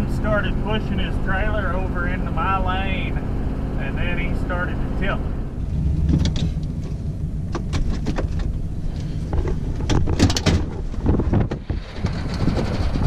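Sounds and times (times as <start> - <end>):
low rumble: 0.0 - 13.0
truck door opening: 5.8 - 11.8
clicks knocks and rattles: 6.0 - 8.6, 9.3 - 11.7
wind on microphone: 9.2 - 13.0.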